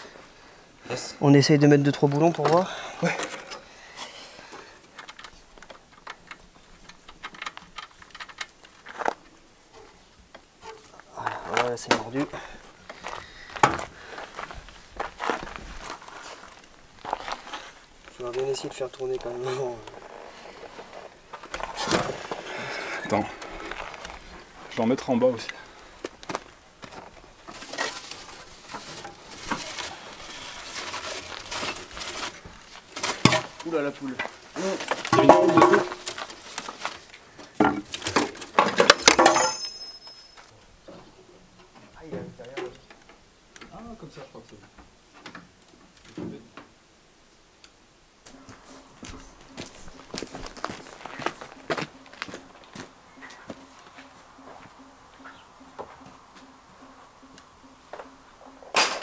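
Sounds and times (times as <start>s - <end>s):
hands and tools scraping: 26.9s - 37.2s.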